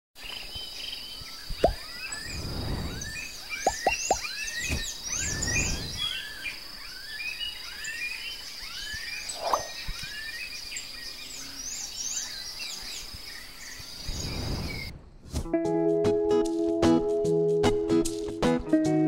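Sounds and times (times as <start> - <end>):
birds chirping and whistling: 0.3 - 14.9.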